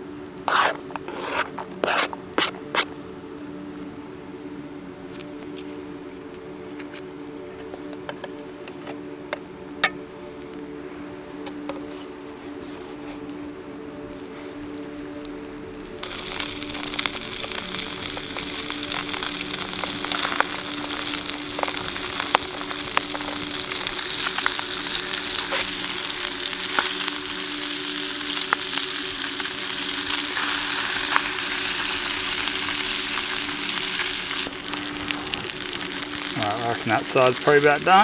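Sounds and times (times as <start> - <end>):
fish sizzling in a pan: 16.0 - 38.0.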